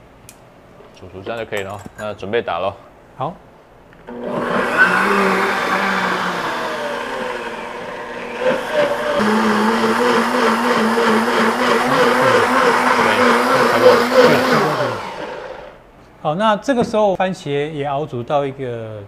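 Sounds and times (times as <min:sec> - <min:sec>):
blender running: 0:04.1 - 0:15.8.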